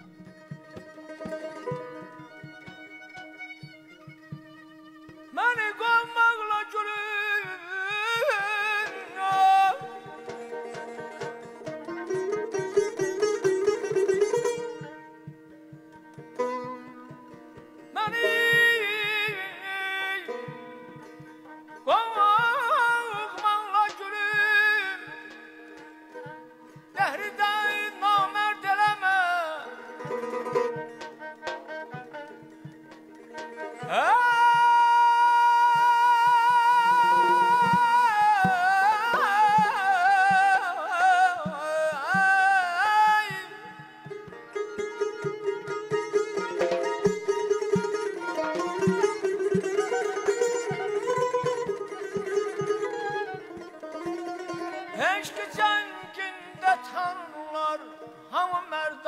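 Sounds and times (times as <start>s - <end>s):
hand-drum taps: 0.0s - 4.7s, 8.8s - 19.4s, 20.3s - 29.1s, 30.0s - 34.8s, 43.3s - 54.8s
balaban: 0.0s - 5.4s, 7.9s - 58.5s
tar plucked in steady pattern: 0.1s - 5.0s, 10.1s - 17.9s, 29.8s - 33.8s, 44.1s - 54.9s
man singing ornamented phrases: 5.4s - 11.2s, 18.0s - 21.0s, 21.7s - 30.6s, 33.8s - 44.4s, 54.8s - 59.0s.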